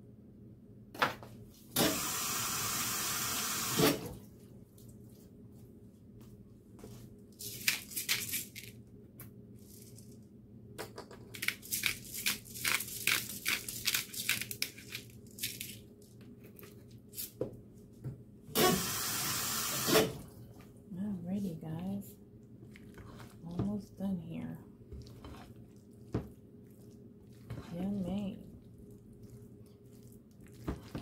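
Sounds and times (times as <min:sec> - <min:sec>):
pepper mill grinding: 0:11.3 - 0:15.9.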